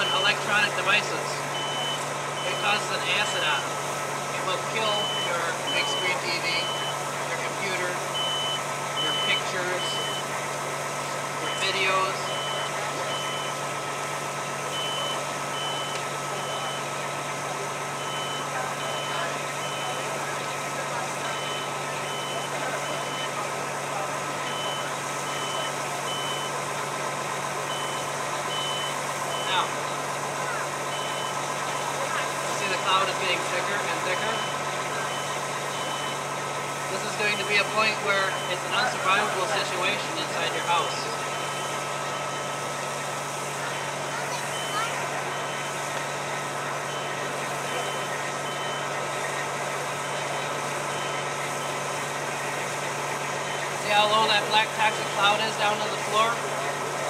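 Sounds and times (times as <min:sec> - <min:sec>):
smoke alarm beeping: 0:00.0 - 0:03.7, 0:04.6 - 0:07.2, 0:08.0 - 0:10.3, 0:11.4 - 0:13.7, 0:14.7 - 0:17.0, 0:17.9 - 0:20.2, 0:24.4 - 0:26.6, 0:27.6 - 0:30.0, 0:30.9 - 0:31.5, 0:32.6 - 0:36.3, 0:37.0 - 0:42.7, 0:44.4 - 0:49.0.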